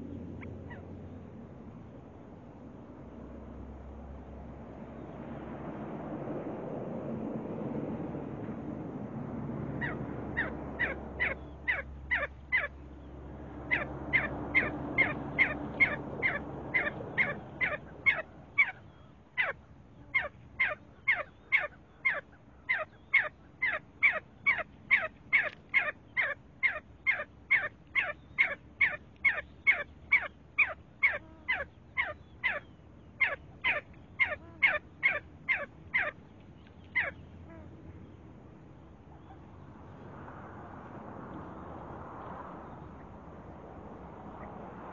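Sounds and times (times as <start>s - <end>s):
partridge calling: 9.8s - 12.8s, 13.7s - 37.7s.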